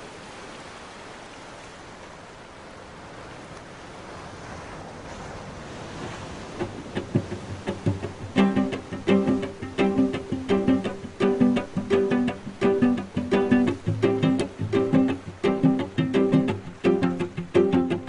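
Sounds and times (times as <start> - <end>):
ocean surf: 0.0 - 18.0
plucked string music: 6.6 - 18.0.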